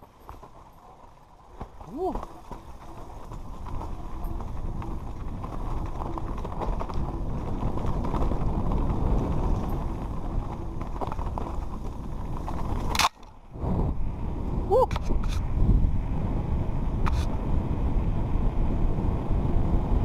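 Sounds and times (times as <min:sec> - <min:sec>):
bike frame rattling and knocking: 0:00.0 - 0:13.4
bike tyres rumbling on dirt: 0:00.0 - 0:20.0.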